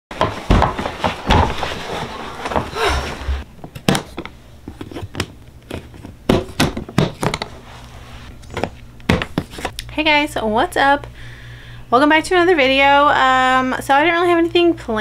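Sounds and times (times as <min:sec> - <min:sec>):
plastic case bumping and scraping: 0:00.2 - 0:07.6.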